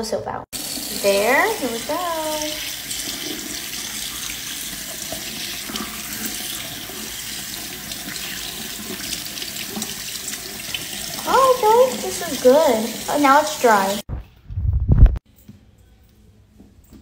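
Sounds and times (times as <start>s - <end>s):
tap water running into sink: 0.6s - 14.0s
water splashing over hand and toys: 0.8s - 14.0s.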